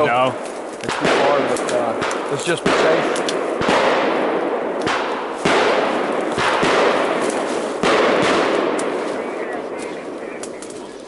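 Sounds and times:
fireworks bangs with hissing: 0.4 - 9.0.

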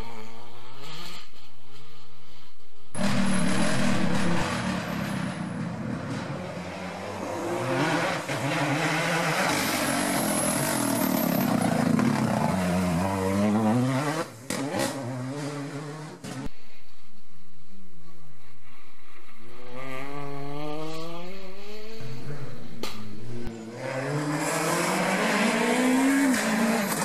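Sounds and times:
rally car engines revving: 3.0 - 16.5, 19.5 - 27.0.

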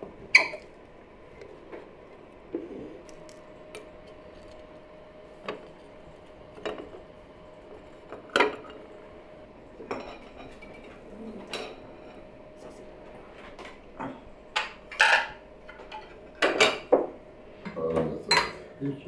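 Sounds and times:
knife clinking on china plates: 18.3 - 18.6.

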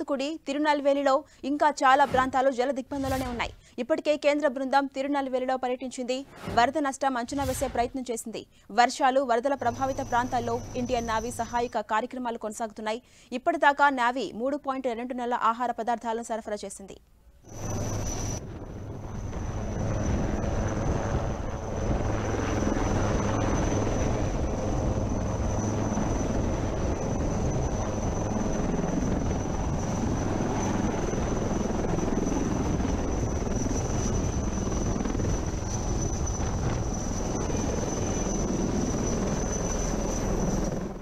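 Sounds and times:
helicopter hovering: 0.0 - 12.9, 17.4 - 41.0
high steady whine: 17.4 - 41.0.

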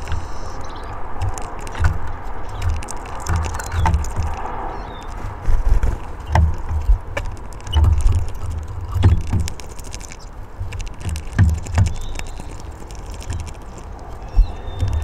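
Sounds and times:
birds knocking on wooden table: 0.0 - 15.0.

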